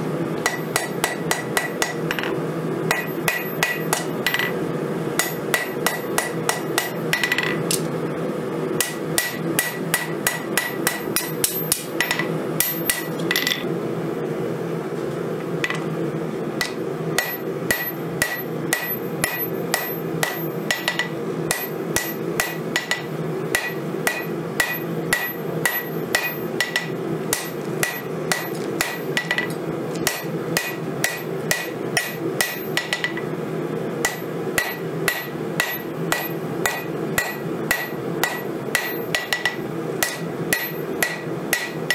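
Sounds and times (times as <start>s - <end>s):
hammer blows on anvil: 34.0s - 41.9s.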